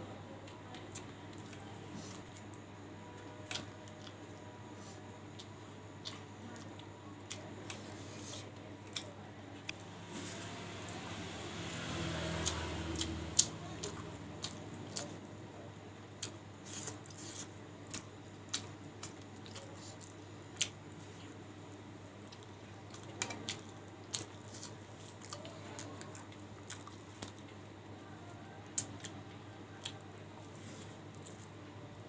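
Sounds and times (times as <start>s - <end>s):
wet chewing and smacking: 22.2s - 27.6s, 31.0s - 31.6s.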